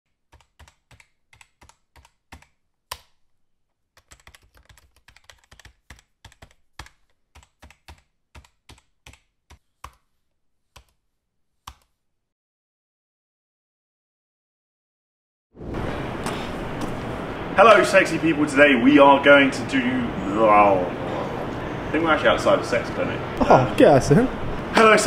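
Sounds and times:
keyboard typing clicks: 0:00.3 - 0:03.2, 0:04.0 - 0:10.0.

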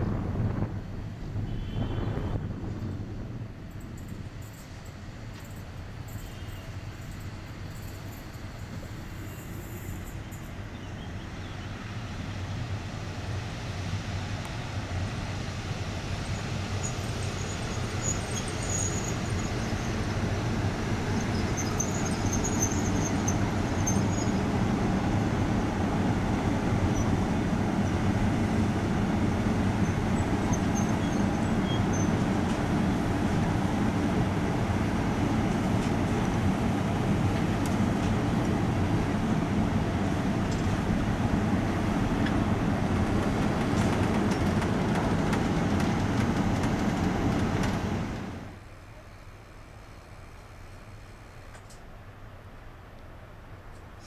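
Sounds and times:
electric locomotive humming: 0:00.0 - 0:52.6
high wheel squeals: 0:04.0 - 0:11.7, 0:16.3 - 0:20.1, 0:21.0 - 0:24.5, 0:29.8 - 0:32.3.

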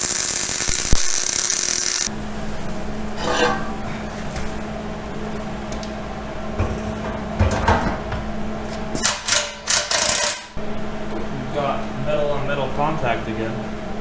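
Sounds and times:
steady low hum: 0:00.0 - 0:14.0
metal clunks and scrapes: 0:03.2 - 0:04.6.

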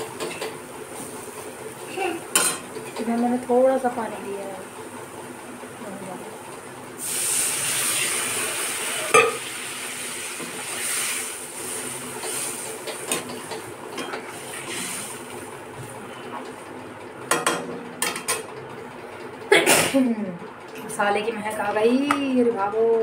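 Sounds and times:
water sizzling in a hot pan: 0:07.0 - 0:13.6.

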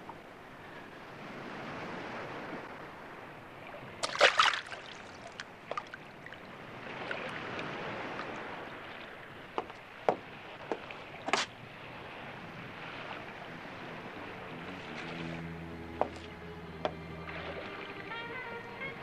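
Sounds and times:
moving water wash: 0:00.0 - 0:19.0
water sloshing from wading: 0:01.2 - 0:18.9
water splashes: 0:01.2 - 0:19.0
water drips: 0:04.0 - 0:11.5.

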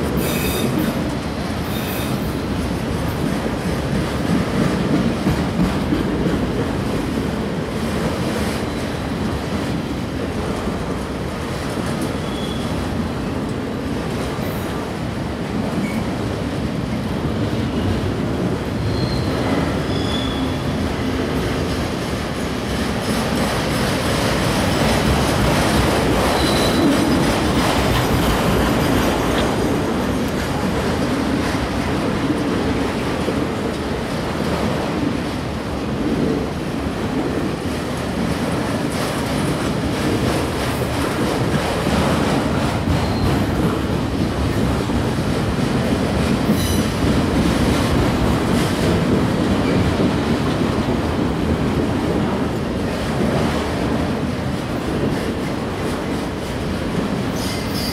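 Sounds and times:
freight train wheels clattering: 0:17.7 - 0:35.3
high wheel squeals: 0:18.8 - 0:20.7, 0:26.4 - 0:26.9.

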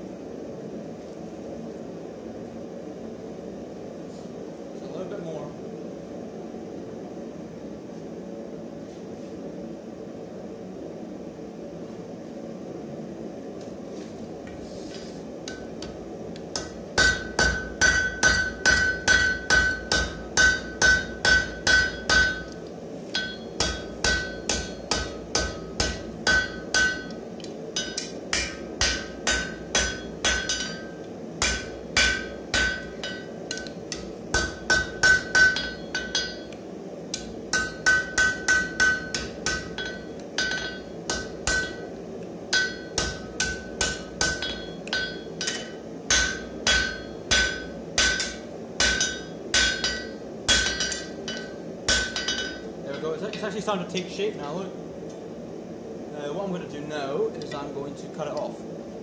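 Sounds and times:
hammer striking anvil: 0:16.6 - 0:27.2, 0:27.8 - 0:36.5, 0:37.2 - 0:41.9, 0:42.5 - 0:53.1.

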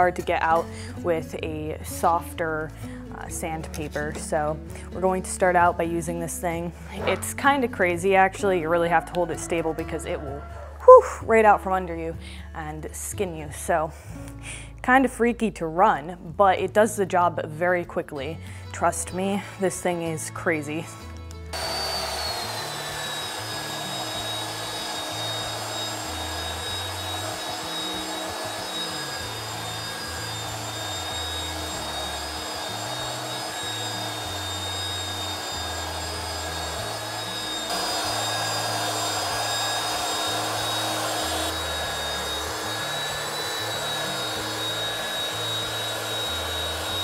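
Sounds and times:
belt sander whining: 0:21.5 - 0:47.0.

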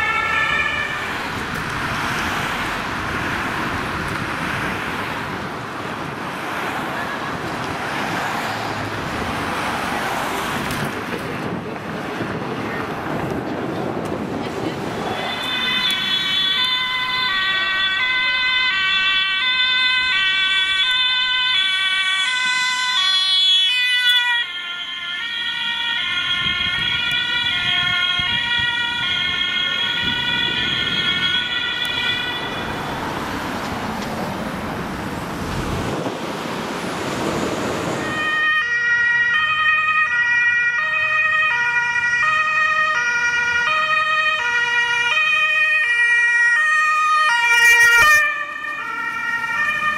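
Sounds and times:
ambulance two-tone siren: 0:00.0 - 0:04.9, 0:14.8 - 0:34.1, 0:37.8 - 0:49.9
two-tone emergency sirens: 0:00.0 - 0:12.4, 0:14.0 - 0:36.1, 0:37.0 - 0:49.9
road traffic noise: 0:00.0 - 0:49.9.

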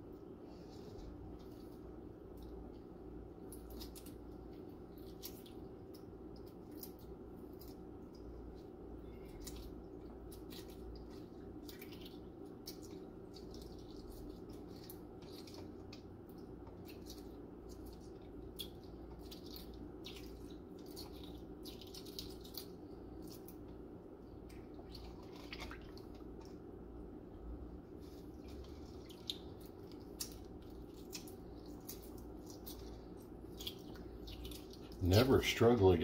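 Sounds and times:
eggshell crackling while peeled: 0:00.0 - 0:36.0
water drips and splashes: 0:24.8 - 0:26.3.

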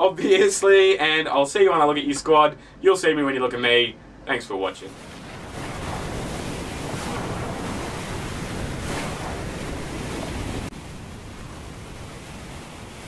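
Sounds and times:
wind: 0:02.2 - 0:13.0
ocean waves: 0:04.8 - 0:13.0.

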